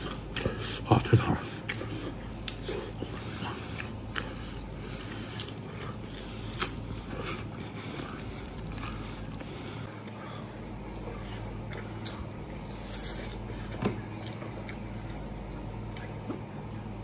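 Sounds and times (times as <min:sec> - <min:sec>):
crunchy biting and chewing: 0:00.0 - 0:10.2.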